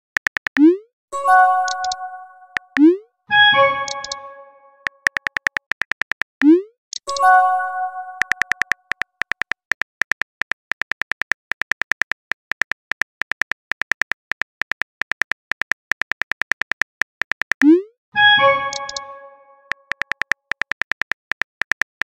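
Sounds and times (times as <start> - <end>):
phone keyboard typing clicks: 0.0 - 0.8, 1.6 - 3.0, 3.6 - 7.4, 8.2 - 17.8, 18.5 - 22.0
message alert chime: 0.6 - 5.1, 6.4 - 8.7, 17.7 - 19.9.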